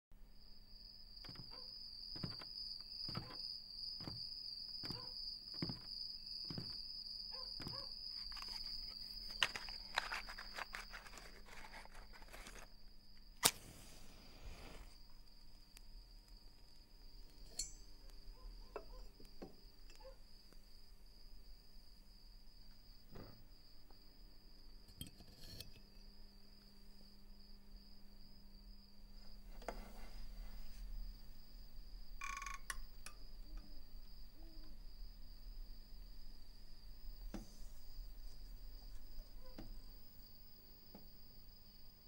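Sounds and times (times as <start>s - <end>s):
rustling and handling: 2.2s - 3.4s, 4.0s - 12.8s
soft thuds: 2.2s - 6.9s, 7.6s - 7.9s
match struck and flaring: 13.4s - 15.0s
high cricket-like trill: 17.3s - 18.8s, 32.2s - 33.4s.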